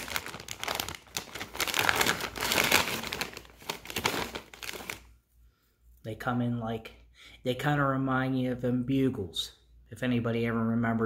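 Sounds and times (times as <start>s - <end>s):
snack bag crinkling: 0.0s - 5.1s.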